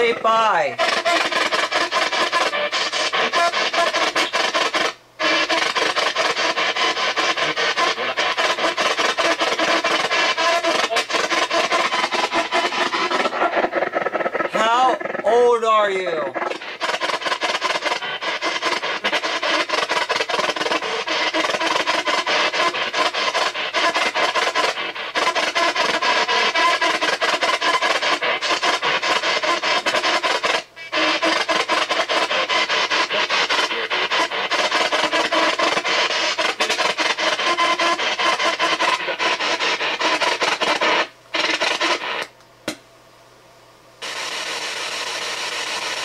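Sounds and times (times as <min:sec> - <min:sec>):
broadcast sound fragments: 0:00.0 - 0:24.0
choppy radio static: 0:00.0 - 0:42.4, 0:44.0 - 0:46.0.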